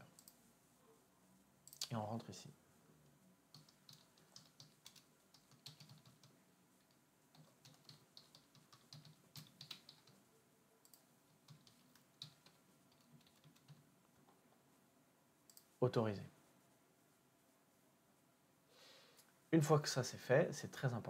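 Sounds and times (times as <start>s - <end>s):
typing on computer keyboard: 3.5s - 10.2s, 10.8s - 13.8s.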